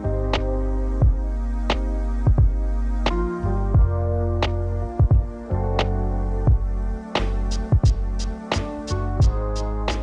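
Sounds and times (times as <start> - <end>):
steady drum beat: 2.3 - 2.6, 5.0 - 5.4, 6.5 - 10.0.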